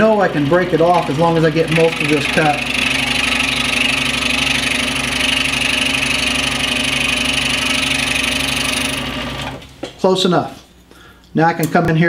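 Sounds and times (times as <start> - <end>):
scroll saw cutting wood: 0.0 - 9.6.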